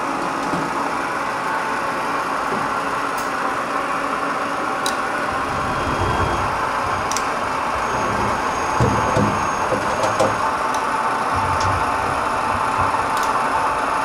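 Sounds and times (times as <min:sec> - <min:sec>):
machine hum: 0:00.0 - 0:14.0
low rumble of turret moving: 0:05.0 - 0:09.8, 0:11.2 - 0:14.0.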